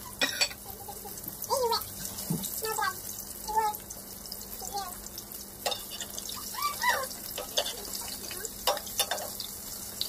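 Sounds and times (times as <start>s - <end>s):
fish sizzling in hot oil: 0.0s - 10.0s
metal spatula clinking on pan: 0.2s - 0.6s, 5.6s - 6.2s, 7.3s - 7.9s, 8.6s - 9.5s.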